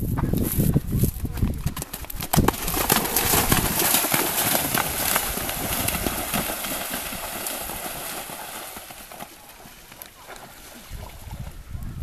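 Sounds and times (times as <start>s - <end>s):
water splashing: 2.5s - 11.3s.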